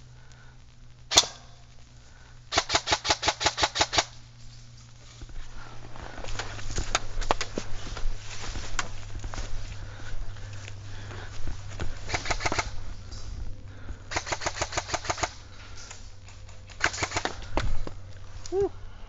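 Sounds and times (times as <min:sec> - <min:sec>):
airsoft guns firing bursts: 0:02.5 - 0:04.2, 0:12.0 - 0:12.9, 0:14.1 - 0:15.6, 0:16.3 - 0:17.8.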